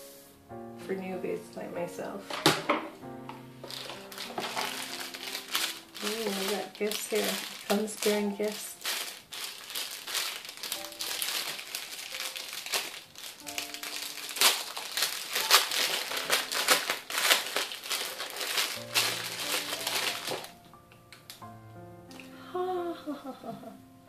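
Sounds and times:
faint background music: 0.0s - 24.0s
plastic bag crinkling: 3.5s - 21.5s.

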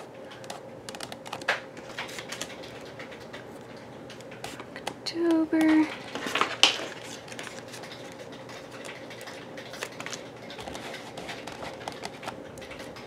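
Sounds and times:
handling rustle: 5.7s - 13.0s.

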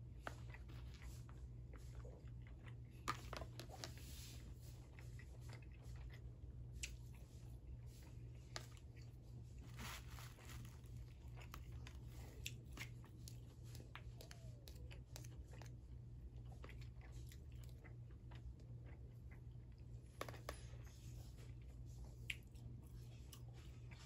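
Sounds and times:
low steady hum: 0.0s - 24.0s
person chewing and crunching: 0.0s - 24.0s.

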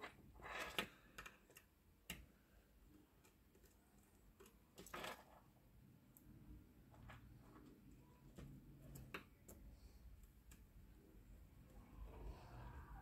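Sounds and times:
clicks and rustling of wires: 3.0s - 5.5s.

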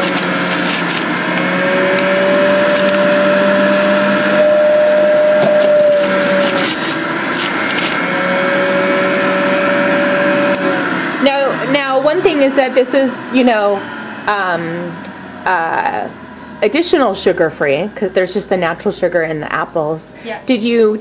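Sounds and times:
apple crunching: 0.0s - 3.1s, 5.4s - 8.4s
juicer motor whining: 0.0s - 20.0s.

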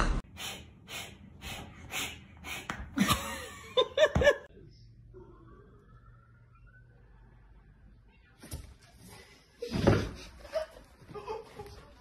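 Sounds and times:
person breathing in quick puffs: 0.3s - 2.8s.

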